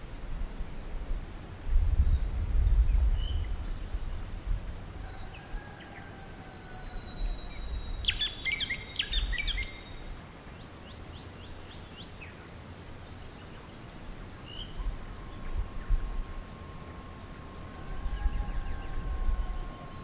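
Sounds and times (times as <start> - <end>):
birds chirping and twittering: 2.0 - 20.0
low rumble: 14.7 - 20.0.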